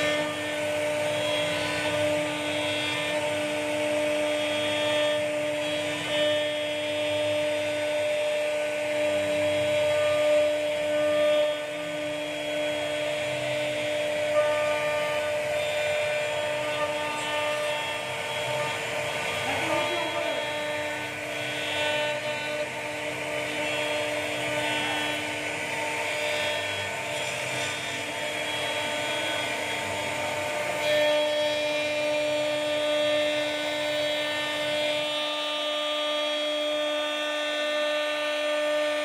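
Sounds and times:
router spindle whining: 0.0s - 39.0s
wood rasping under cutter: 0.0s - 39.0s.

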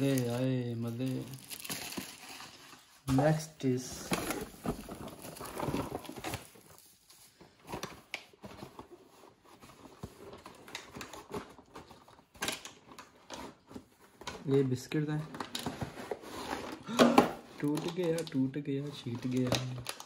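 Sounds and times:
paper filler rustling: 0.0s - 20.0s.

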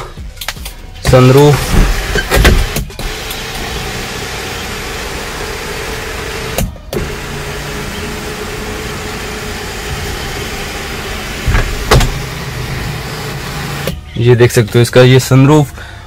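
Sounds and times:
electric sunroof motor humming: 2.6s - 14.0s.

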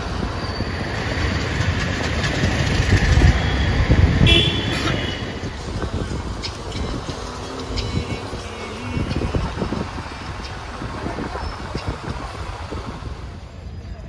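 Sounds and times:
road traffic rumble: 0.0s - 14.0s
vehicle horn: 4.2s - 5.4s.

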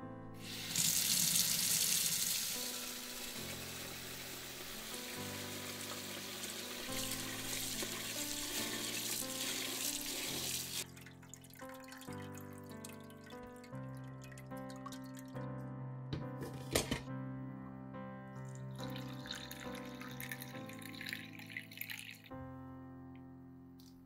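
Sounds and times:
tap water pouring into bowl: 0.4s - 15.4s, 18.7s - 22.3s.

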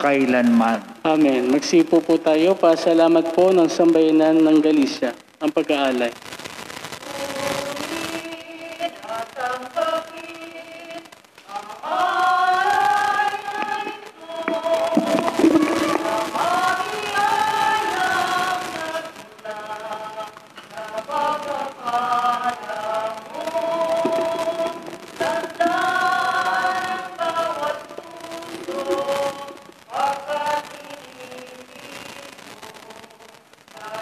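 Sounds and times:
choir singing a hymn: 8.8s - 31.6s.

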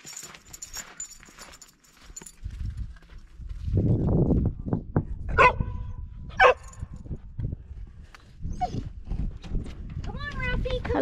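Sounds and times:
dog barking: 5.3s - 6.7s
dog yipping: 8.5s - 8.8s.

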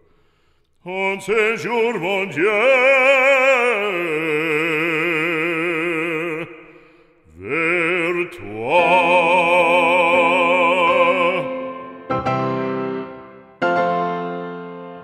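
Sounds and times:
operatic voice singing: 0.8s - 12.1s.

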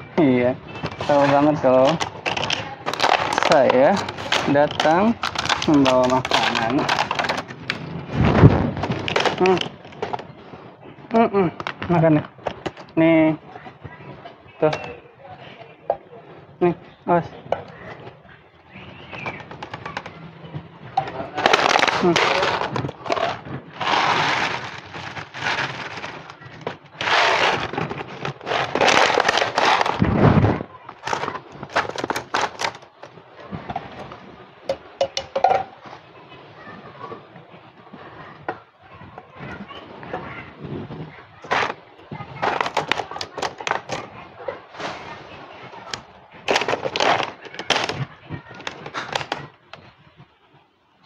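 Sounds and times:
plastic bag crinkling: 0.7s - 10.6s, 21.1s - 35.6s, 41.3s - 50.1s.

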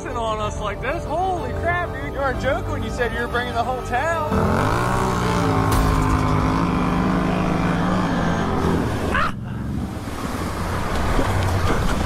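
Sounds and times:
atv engine revving: 4.3s - 12.0s.

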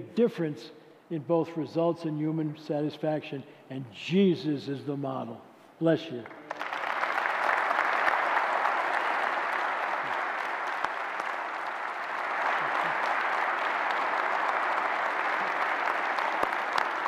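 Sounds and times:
large audience applauding: 6.2s - 17.0s.

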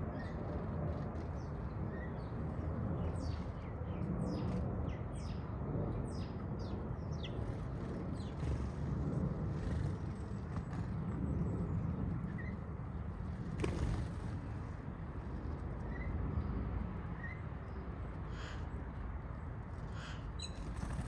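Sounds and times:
sparrows chirping: 0.0s - 14.6s, 19.7s - 21.0s
steady low rumble: 0.0s - 21.0s.

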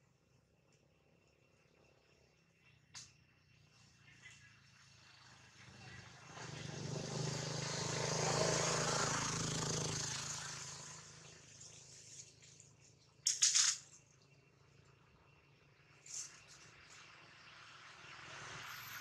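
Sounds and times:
motor vehicle passing: 4.6s - 12.6s, 15.4s - 19.0s.

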